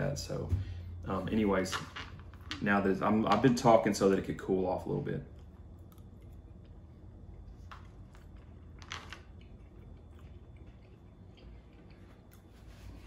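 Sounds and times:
person chewing noodles: 0:05.3 - 0:13.0.

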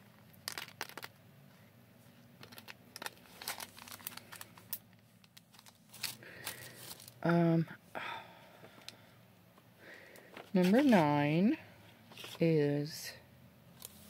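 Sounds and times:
plastic bags crinkling: 0:00.2 - 0:01.2, 0:02.4 - 0:07.2, 0:10.1 - 0:11.2.

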